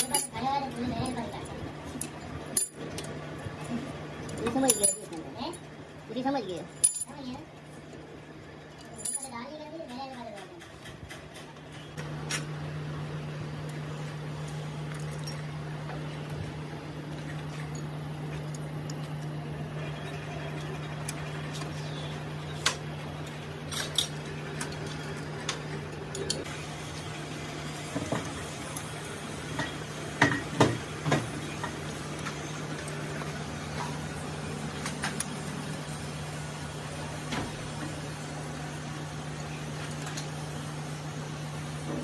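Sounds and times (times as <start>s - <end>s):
metal parts clinking: 0.0s - 5.7s, 6.5s - 7.4s, 8.8s - 9.4s, 14.9s - 15.5s, 22.6s - 26.5s.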